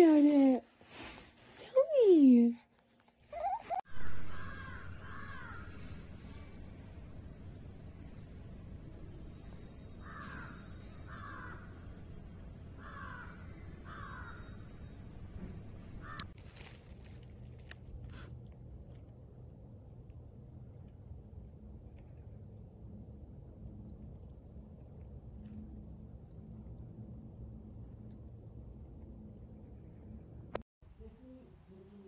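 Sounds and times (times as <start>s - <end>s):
outdoor background noise: 0.0s - 32.0s
crow cawing: 4.1s - 5.8s, 10.0s - 11.8s, 12.8s - 14.6s.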